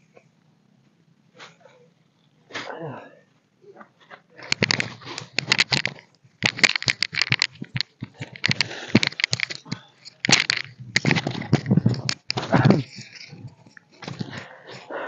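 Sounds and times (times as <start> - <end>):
dense crackling and rustling: 3.9 - 15.0.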